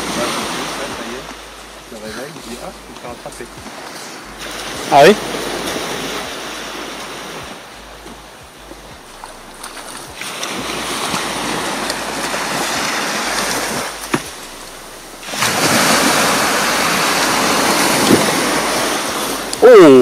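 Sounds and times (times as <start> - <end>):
waves breaking on beach: 0.0 - 20.0.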